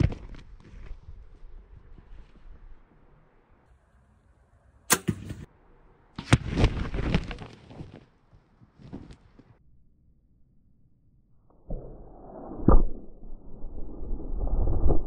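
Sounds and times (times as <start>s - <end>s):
arrow striking with sharp crack: 4.9s - 5.5s.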